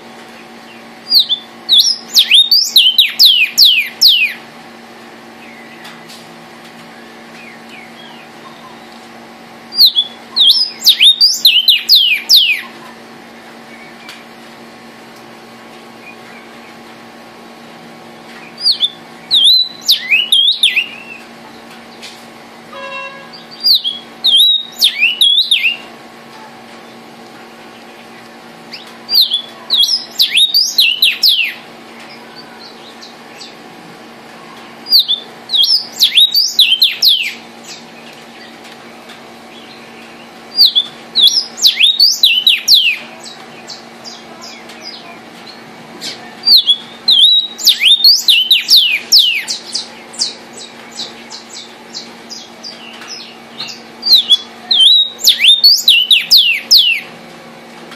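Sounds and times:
bird whistling song: 1.1 - 4.4, 9.7 - 12.6, 18.4 - 21.2, 23.3 - 25.9, 28.7 - 31.6, 34.9 - 37.8, 39.6 - 45.0, 46.5 - 57.1.

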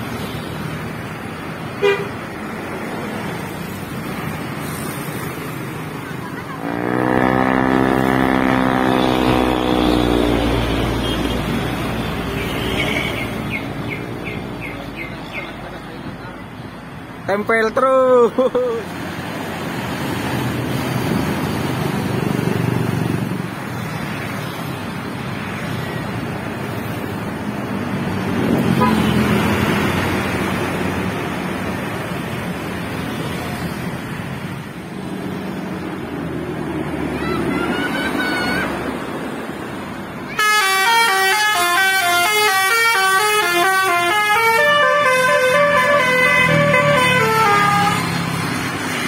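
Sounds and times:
road traffic: 0.0 - 49.0
bus horn playing a melody: 1.8 - 2.2, 6.6 - 11.6, 28.8 - 29.2, 40.4 - 48.2.

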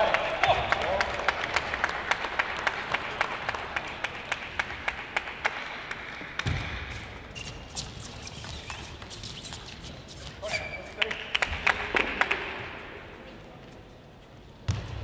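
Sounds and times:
spectators applauding: 0.0 - 6.4.

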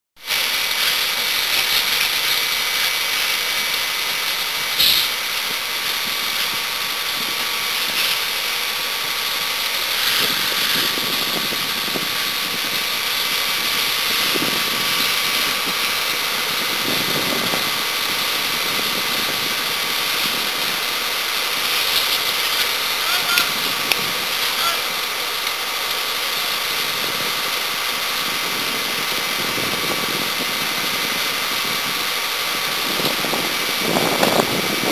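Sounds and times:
fire engine pump hiss and whine: 0.2 - 34.9.

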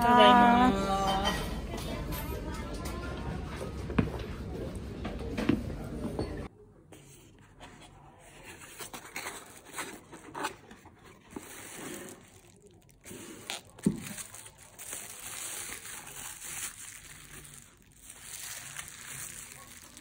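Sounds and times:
cardboard scraping: 7.0 - 14.2
bubble wrap rustling: 9.0 - 20.0.

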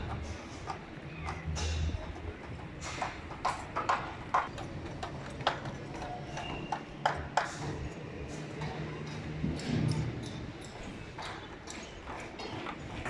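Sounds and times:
sharp wooden knocks and clacks: 0.0 - 7.9.

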